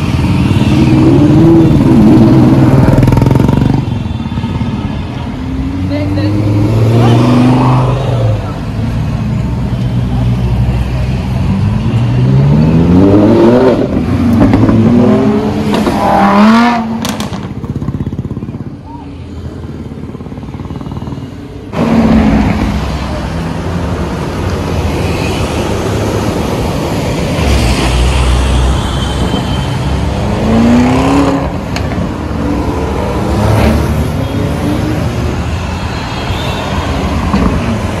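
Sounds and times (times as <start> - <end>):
sports car engines revving: 0.0 - 3.8, 5.3 - 9.6, 11.2 - 18.5, 30.0 - 35.4
road traffic: 0.0 - 38.0.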